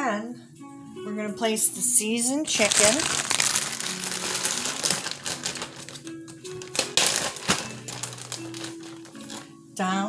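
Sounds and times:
soft background music: 0:00.0 - 0:10.0
plastic bag crinkling: 0:02.5 - 0:09.5.

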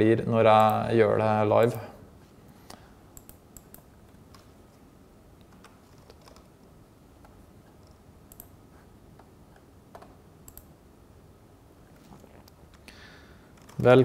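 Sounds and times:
room noise: 0:00.0 - 0:14.0
keyboard and mouse clicks: 0:02.7 - 0:04.5, 0:05.4 - 0:06.5, 0:07.2 - 0:08.6, 0:09.2 - 0:10.7.

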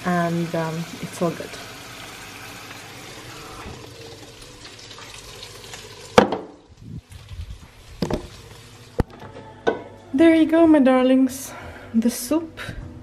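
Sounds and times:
tap water running into pot: 0:00.0 - 0:09.2.

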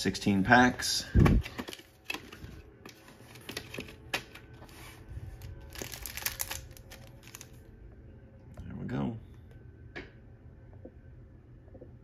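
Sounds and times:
card packs clicking: 0:01.4 - 0:04.5, 0:05.7 - 0:07.5
wrappers crinkling: 0:03.2 - 0:07.6.

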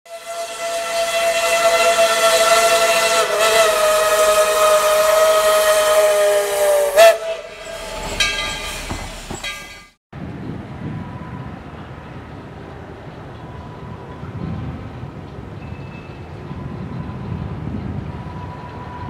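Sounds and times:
locomotive air horn: 0:00.1 - 0:08.9.

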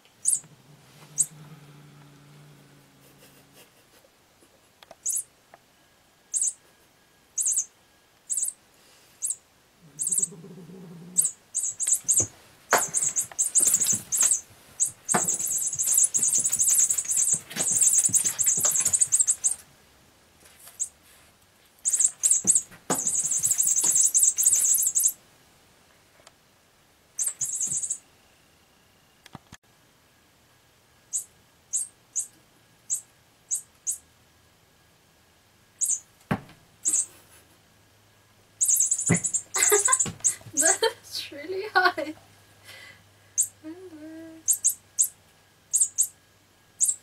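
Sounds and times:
bird-like twittering toy: 0:00.2 - 0:00.4, 0:05.0 - 0:05.3, 0:06.3 - 0:06.6, 0:07.4 - 0:07.7, 0:08.3 - 0:08.6, 0:09.2 - 0:09.4, 0:10.0 - 0:10.3, 0:11.2 - 0:19.6, 0:21.8 - 0:25.2, 0:27.2 - 0:28.0, 0:31.1 - 0:32.3, 0:32.9 - 0:34.0, 0:35.8 - 0:36.0, 0:36.8 - 0:37.1, 0:38.6 - 0:40.8, 0:44.4 - 0:46.1, 0:46.8 - 0:47.0.

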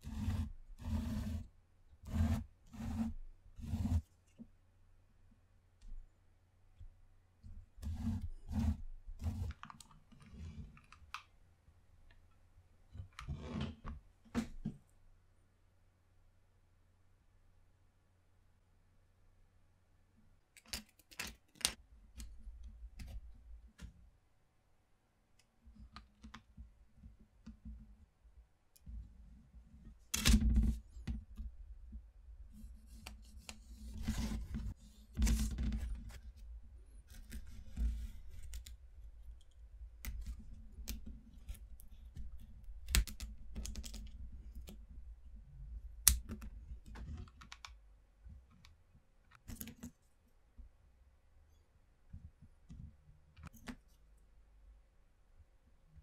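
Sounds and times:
pencil scratching along ruler: 0:00.0 - 0:04.1, 0:07.8 - 0:10.5.

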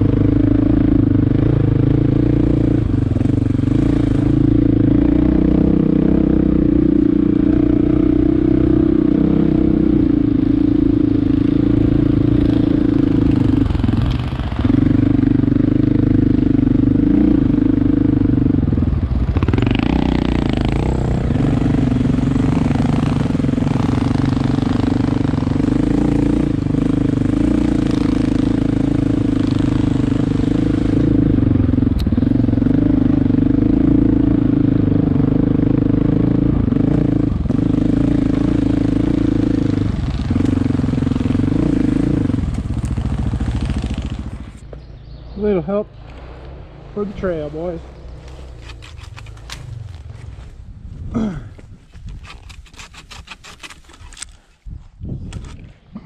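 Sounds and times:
engine running loudly: 0:00.0 - 0:44.6.

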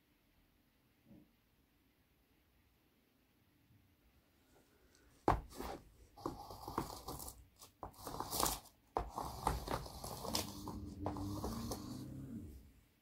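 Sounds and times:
pencils scratching and tearing paper: 0:05.5 - 0:12.5.

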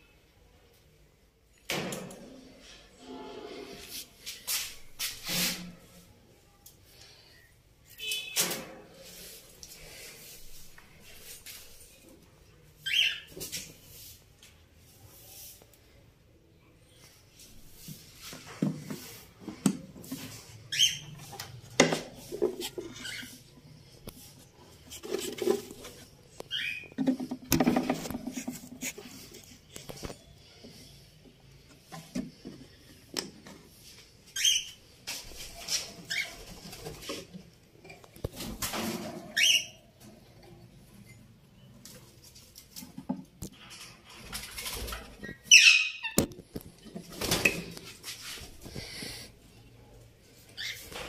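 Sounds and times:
knocks and rustles: 0:24.1 - 0:30.2
knocks and rubbing of cage: 0:27.0 - 0:28.8
parrot chirp: 0:45.5 - 0:46.2.

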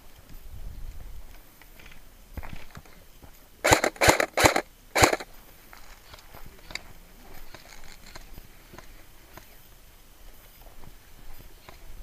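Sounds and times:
faint ticks and scuffs: 0:00.0 - 0:03.6, 0:04.7 - 0:12.0
airsoft rifle shots: 0:03.6 - 0:05.3.

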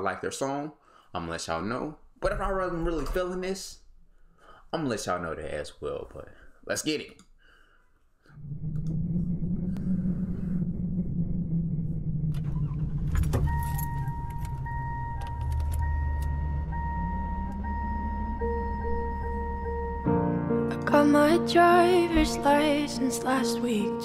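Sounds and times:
car engine running: 0:08.4 - 0:20.2
electronic chime tone from car: 0:12.5 - 0:20.1.

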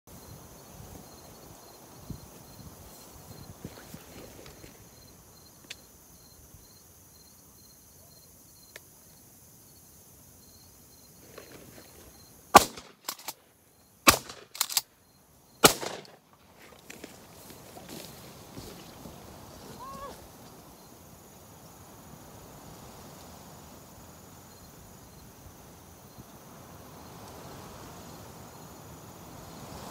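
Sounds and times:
loud shotgun shots: 0:12.6 - 0:13.3, 0:14.1 - 0:14.8, 0:15.6 - 0:16.2.

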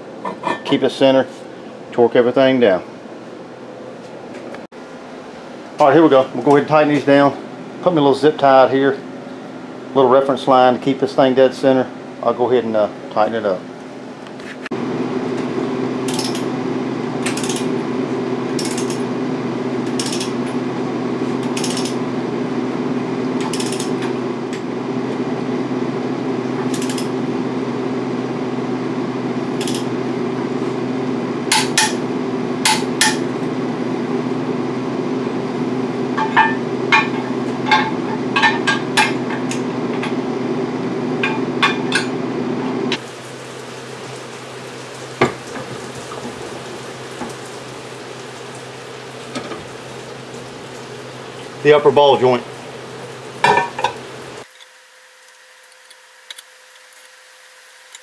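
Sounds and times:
steady hum: 0:00.0 - 0:54.5
torque wrench clicks: 0:19.9 - 0:20.3, 0:21.6 - 0:22.0.

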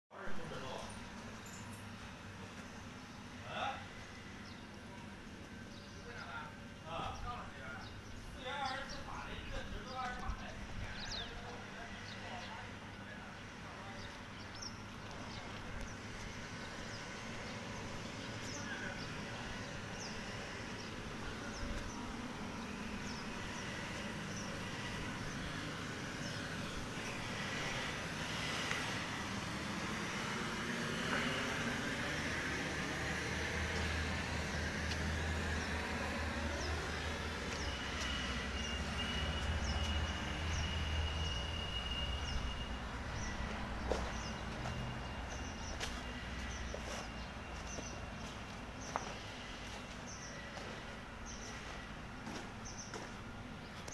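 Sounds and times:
electric air blower running: 0:14.8 - 0:53.2.

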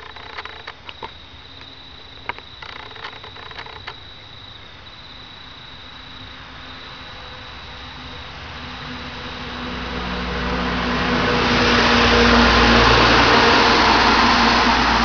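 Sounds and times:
sharp clicks: 0:00.0 - 0:04.0
crickets trilling: 0:00.0 - 0:15.0.

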